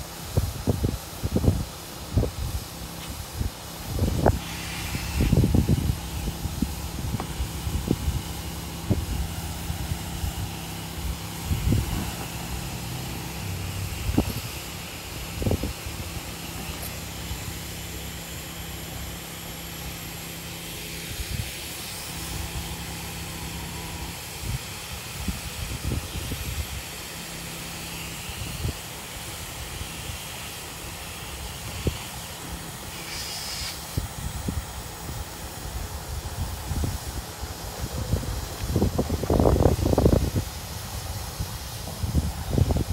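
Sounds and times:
electric blower humming: 0.0 - 42.9
wind buffeting microphone: 0.4 - 16.2, 36.2 - 42.9.

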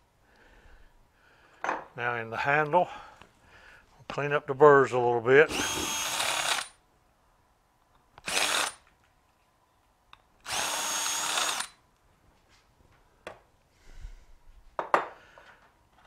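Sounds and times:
cordless drill whining: 5.5 - 6.8, 8.2 - 8.9, 10.4 - 11.8
knock: 14.8 - 15.1.

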